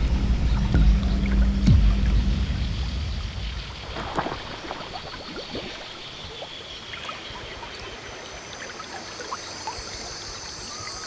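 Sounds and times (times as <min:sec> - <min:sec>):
higher hum: 0:00.0 - 0:04.8
river water trickling and lapping: 0:00.4 - 0:11.0
small splashy ticks: 0:03.9 - 0:10.7.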